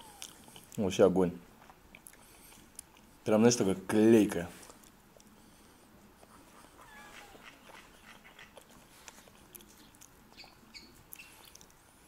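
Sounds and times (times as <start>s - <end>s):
dog whining softly: 6.3s - 8.6s.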